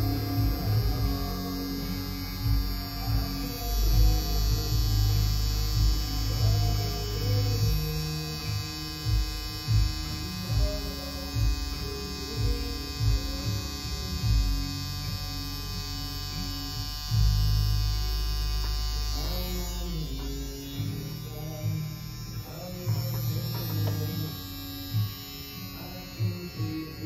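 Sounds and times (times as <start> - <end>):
background music: 0.0 - 27.0
tattoo machine buzzing: 0.0 - 27.0.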